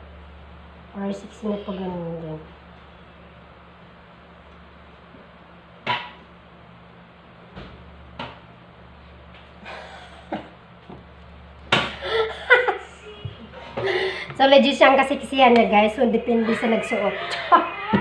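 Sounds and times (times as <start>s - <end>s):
steady low hum: 0.0s - 18.0s
woman laughing loudly: 12.0s - 13.9s, 16.3s - 18.0s.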